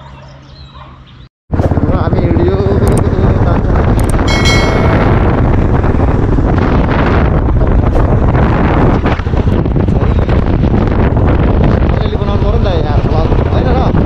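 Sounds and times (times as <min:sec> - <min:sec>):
wind buffeting microphone: 0:01.5 - 0:14.0
brief high chime: 0:04.3 - 0:05.2.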